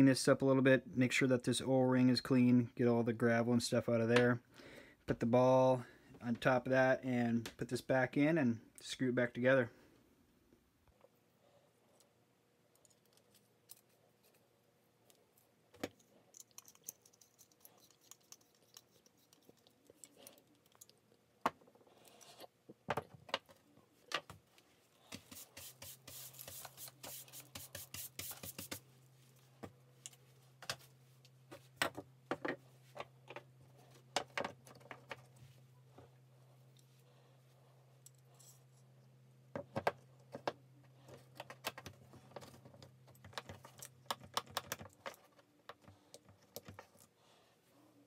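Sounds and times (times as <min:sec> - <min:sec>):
metal fittings clicking and scraping: 0:16.0 - 0:21.0.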